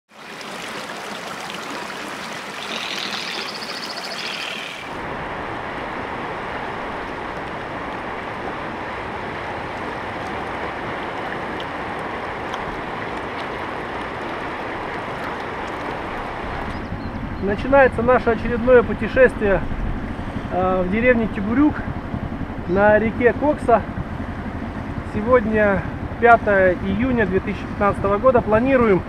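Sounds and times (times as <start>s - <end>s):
river water rushing: 0.1s - 16.8s.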